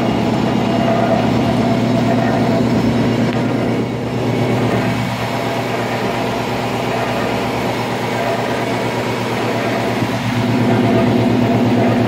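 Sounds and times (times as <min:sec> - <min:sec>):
punch press mechanical hum: 0:00.0 - 0:12.0.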